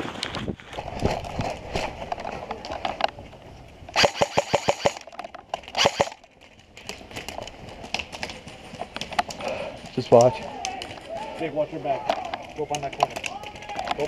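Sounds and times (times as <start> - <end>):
airsoft rifle firing bursts: 4.0 - 5.0, 5.8 - 6.2.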